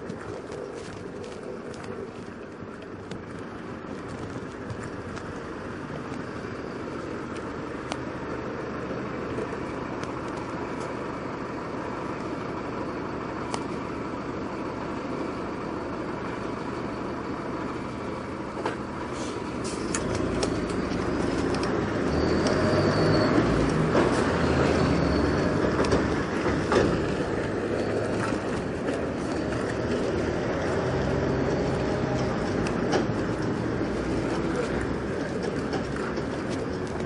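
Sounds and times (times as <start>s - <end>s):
lorry engine running: 0.0s - 37.0s
low traffic rumble: 0.0s - 37.0s
sharp clicks: 19.7s - 24.4s.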